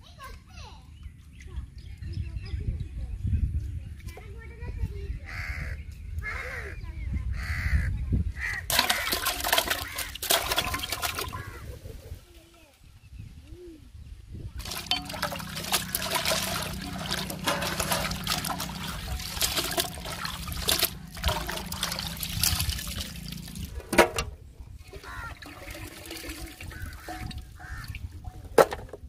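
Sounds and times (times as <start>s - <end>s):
hands splashing water in pot: 8.7s - 11.6s, 14.6s - 23.8s, 24.9s - 27.9s.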